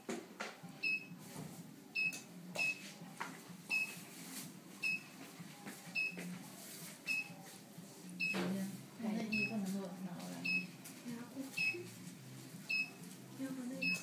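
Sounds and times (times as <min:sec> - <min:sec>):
high-pitched machine beeps: 0:00.8 - 0:01.1, 0:02.0 - 0:02.8, 0:04.8 - 0:05.1, 0:06.0 - 0:06.2, 0:07.1 - 0:07.4, 0:09.3 - 0:09.6, 0:10.4 - 0:10.8, 0:11.6 - 0:11.8, 0:12.7 - 0:13.0, 0:13.8 - 0:14.0.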